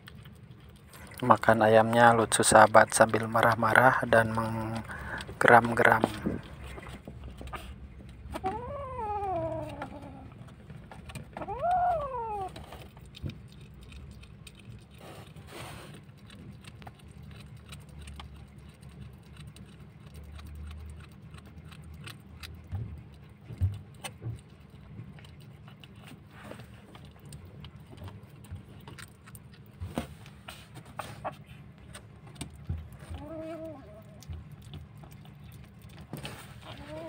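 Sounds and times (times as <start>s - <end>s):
faint chewing clicks: 0.0s - 37.0s
kitten growling: 4.4s - 10.6s, 11.3s - 16.0s, 32.6s - 37.0s.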